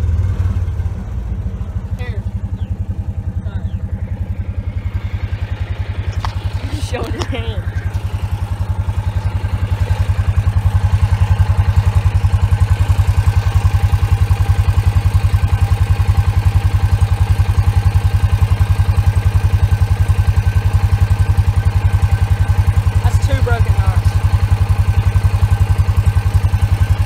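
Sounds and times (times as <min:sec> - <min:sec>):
engine idling exhaust putter: 0:00.0 - 0:27.0.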